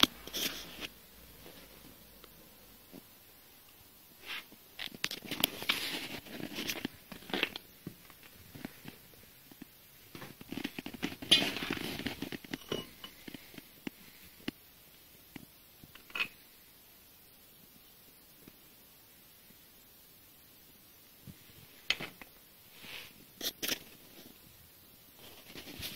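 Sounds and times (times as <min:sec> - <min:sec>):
rustling: 0:00.0 - 0:02.0, 0:04.2 - 0:14.5, 0:25.1 - 0:25.9.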